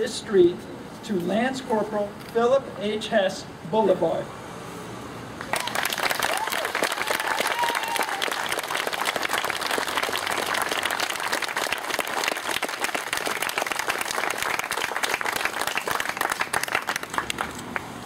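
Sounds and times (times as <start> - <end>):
crowd applauding: 5.4 - 17.9.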